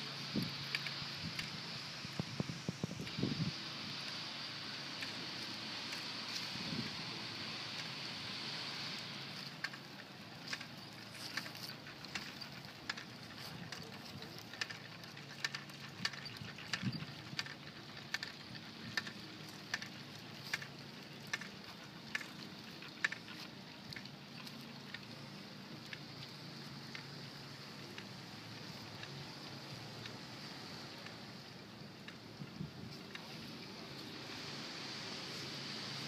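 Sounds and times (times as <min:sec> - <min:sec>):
wind noise on microphone: 0:00.2 - 0:04.1, 0:06.4 - 0:07.3, 0:15.9 - 0:19.0, 0:32.3 - 0:33.4
footsteps on dry grass and leaves: 0:05.2 - 0:07.4, 0:08.8 - 0:14.6.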